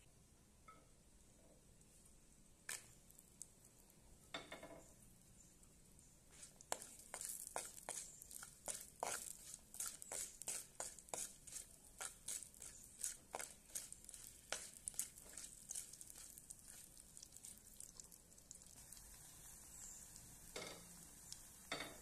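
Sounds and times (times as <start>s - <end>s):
spoon scraping a pan: 6.3s - 17.8s, 19.7s - 21.1s, 21.7s - 22.0s
food sizzling in oil: 6.3s - 22.0s.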